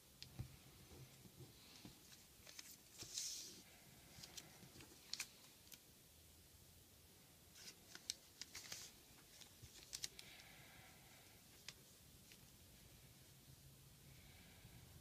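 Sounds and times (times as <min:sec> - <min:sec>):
paper rustling: 0:01.6 - 0:03.6, 0:04.2 - 0:05.8, 0:07.6 - 0:10.3
crisp paper ticks: 0:07.6 - 0:10.3.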